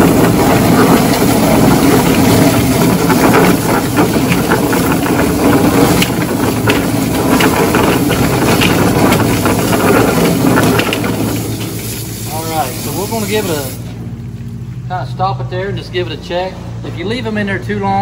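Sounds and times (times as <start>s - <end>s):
chicken plucker motor and drum churn: 0.0s - 16.1s
hose spray hissing: 11.7s - 14.0s.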